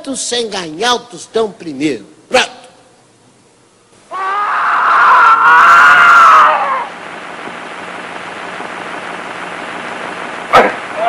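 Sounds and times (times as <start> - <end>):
person screaming: 4.1 - 6.9
steady hiss: 4.9 - 11.0.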